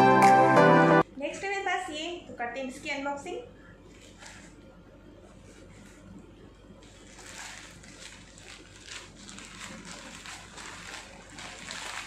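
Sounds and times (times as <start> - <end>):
plastic bag crinkling: 6.8 - 12.0
scissors cutting plastic: 7.1 - 12.0.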